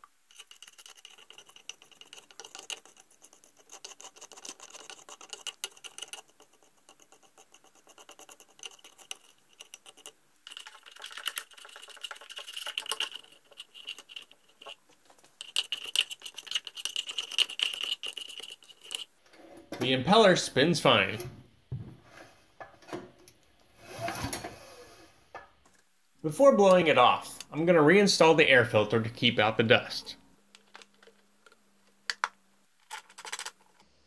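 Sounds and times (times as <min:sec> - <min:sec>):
screwdriver scraping rust: 0:00.3 - 0:14.8, 0:15.4 - 0:19.1.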